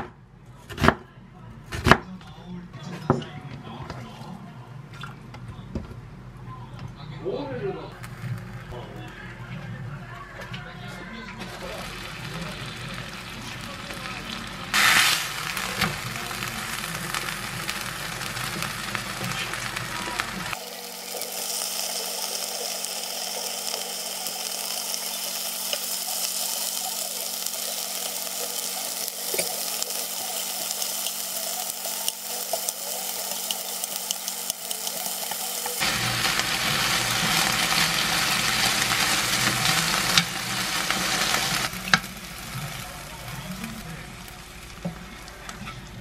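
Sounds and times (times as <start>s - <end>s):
meat sizzling in a frying pan: 11.4s - 45.6s.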